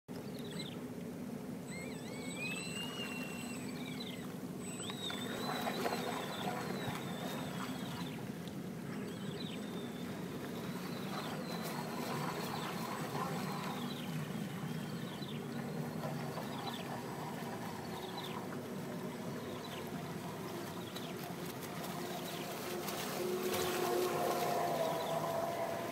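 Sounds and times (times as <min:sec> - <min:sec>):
lake water lapping at shore: 0:00.1 - 0:25.9
high chirping calls: 0:01.7 - 0:08.1.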